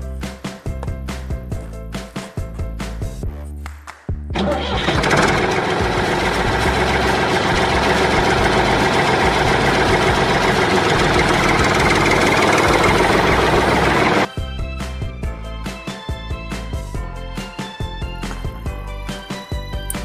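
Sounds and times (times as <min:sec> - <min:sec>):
background music: 0:00.0 - 0:20.0
tractor engine running: 0:04.4 - 0:14.3.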